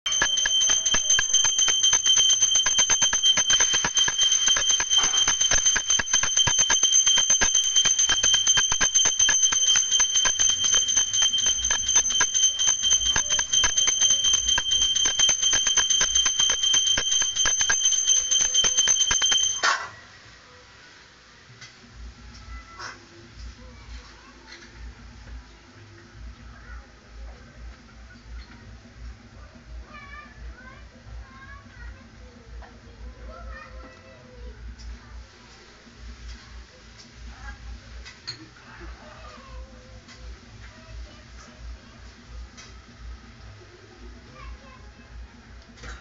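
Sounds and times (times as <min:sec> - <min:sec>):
bell ringing rapidly: 0:00.0 - 0:19.7.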